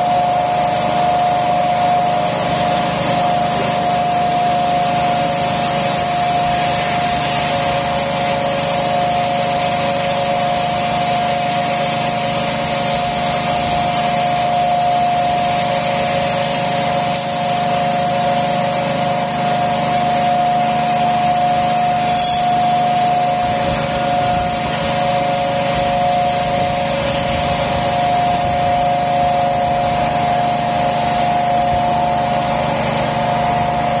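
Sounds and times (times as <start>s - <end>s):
loud machinery hiss: 0.0s - 34.0s
machinery hum: 11.8s - 34.0s
machinery whining tones: 16.9s - 34.0s.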